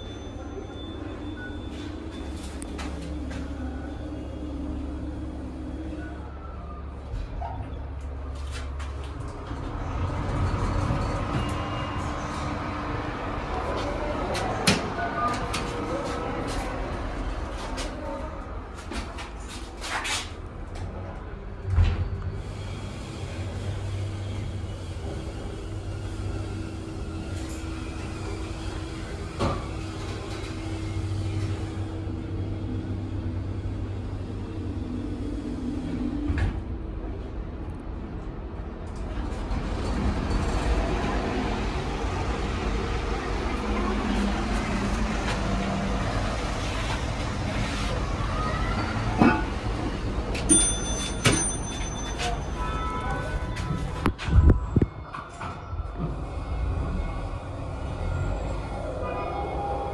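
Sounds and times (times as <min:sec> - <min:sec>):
elevator humming: 0:00.0 - 0:17.5
subway station noise: 0:00.0 - 0:59.9
elevator stopping with clunk: 0:48.8 - 0:52.5.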